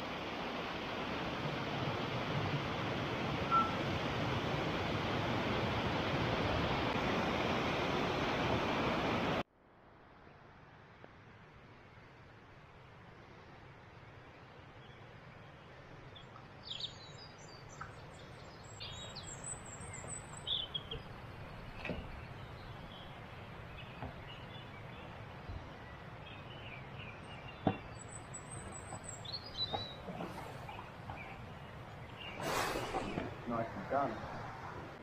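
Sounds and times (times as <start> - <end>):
songbirds chirping and singing: 16.2 - 34.1.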